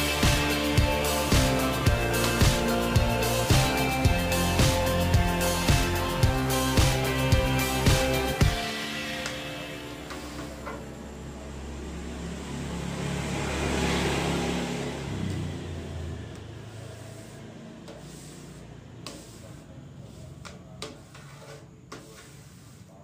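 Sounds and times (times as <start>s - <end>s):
passing vehicle engine hum: 9.7s - 19.0s.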